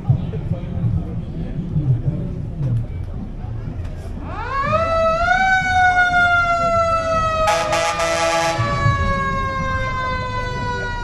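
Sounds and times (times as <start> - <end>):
fire truck siren wailing: 4.2 - 11.0
harsh horn blast: 7.4 - 8.8.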